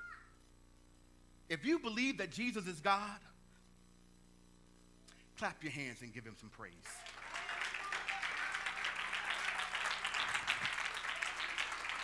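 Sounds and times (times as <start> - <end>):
congregation clapping: 6.8 - 12.0.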